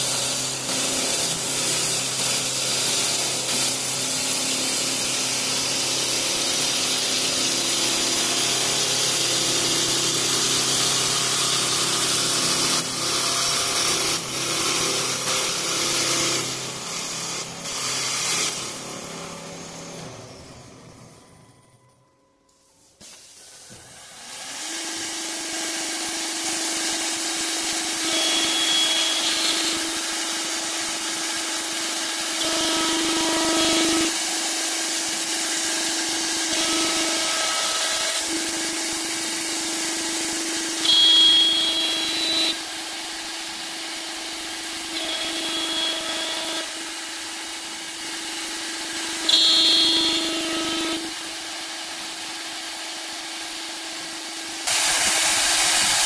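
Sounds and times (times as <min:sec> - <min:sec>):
hiss of cutting wood: 0:00.0 - 0:19.9, 0:22.9 - 0:56.0
wood lathe cutter motors whining: 0:00.0 - 0:22.4, 0:23.4 - 0:56.0
high squeals: 0:27.9 - 0:30.8, 0:40.6 - 0:42.7, 0:44.6 - 0:46.8.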